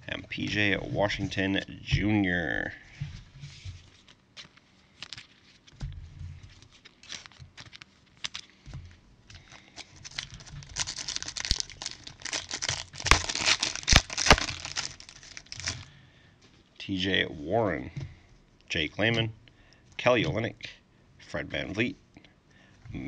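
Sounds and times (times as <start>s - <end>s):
plastic wrapper crinkling: 6.5s - 8.6s, 9.4s - 15.9s.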